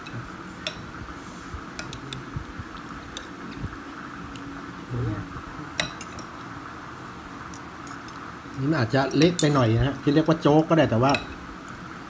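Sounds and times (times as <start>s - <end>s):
steady background hiss: 0.0s - 12.0s
spoon clinking against bowl: 9.1s - 9.7s, 11.1s - 11.4s.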